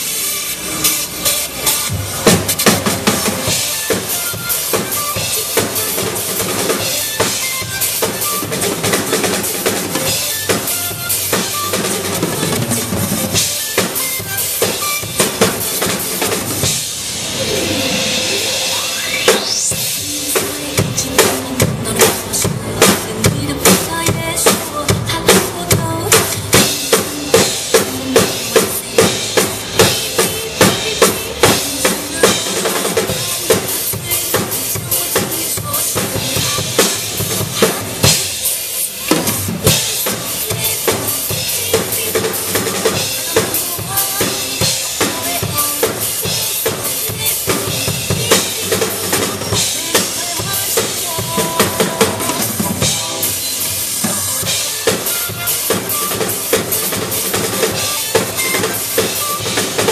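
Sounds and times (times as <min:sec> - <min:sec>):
drum kit playing: 0:00.0 - 0:59.9
recorded backing music: 0:00.0 - 0:59.9
rising sweep in music: 0:16.7 - 0:20.5.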